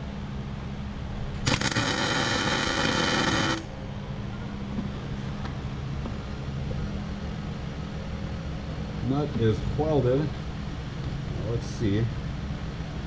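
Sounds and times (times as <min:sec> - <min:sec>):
welder arc crackling: 0:01.4 - 0:03.7.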